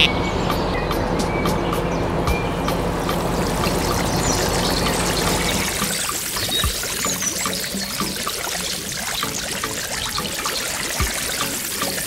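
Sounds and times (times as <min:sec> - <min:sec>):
low hum: 0:00.0 - 0:06.5
water splashing into a pool: 0:03.0 - 0:12.0.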